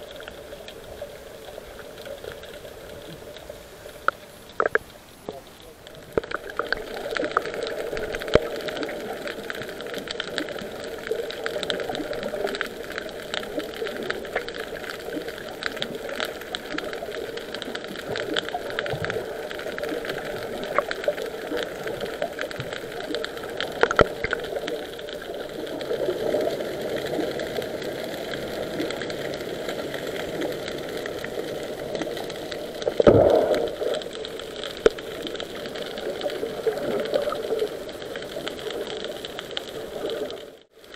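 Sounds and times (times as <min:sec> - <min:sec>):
muffled underwater hiss: 0:00.0 - 0:40.9
clicks and small knocks: 0:02.4 - 0:08.6, 0:21.6 - 0:24.4.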